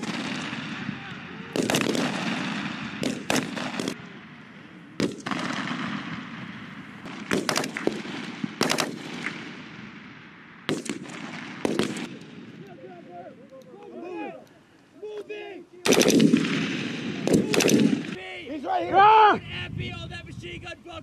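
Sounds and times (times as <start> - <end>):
rifle shots with echo: 0.0 - 13.1, 15.8 - 18.2.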